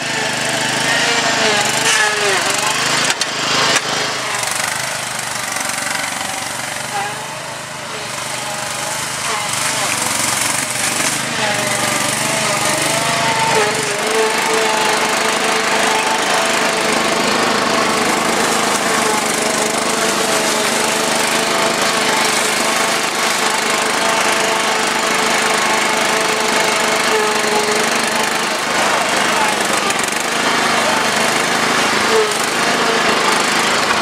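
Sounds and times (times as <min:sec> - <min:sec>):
small petrol engine running: 0:00.0 - 0:34.0.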